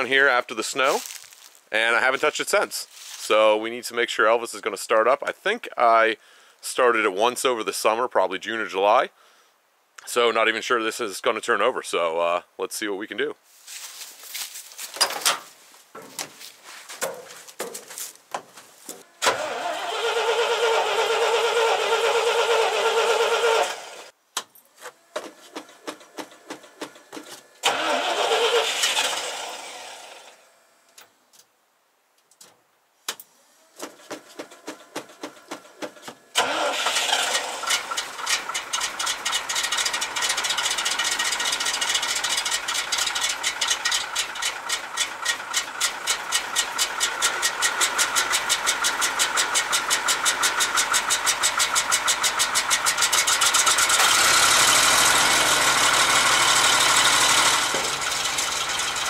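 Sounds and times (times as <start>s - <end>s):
engine running: 19.1s - 24.1s, 24.9s - 30.6s, 33.4s - 59.0s
starter motor cranking: 19.2s - 24.1s, 24.9s - 30.4s, 33.7s - 59.0s.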